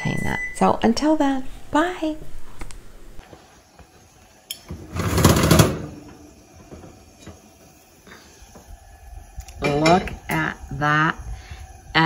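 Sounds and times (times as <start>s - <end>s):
oven door metallic rattle: 4.7s - 6.2s.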